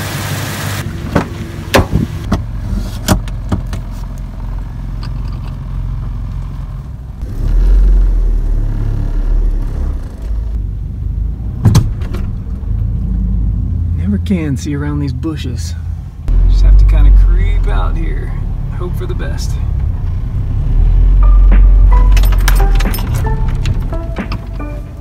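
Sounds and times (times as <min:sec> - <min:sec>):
truck door opened and shut: 0:11.6 - 0:12.4, 0:21.2 - 0:24.9.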